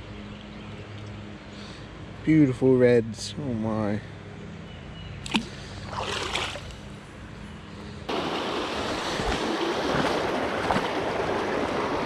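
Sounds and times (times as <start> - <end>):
short watery splash: 5.2 - 6.8
stream rushing over rocks: 8.1 - 12.0.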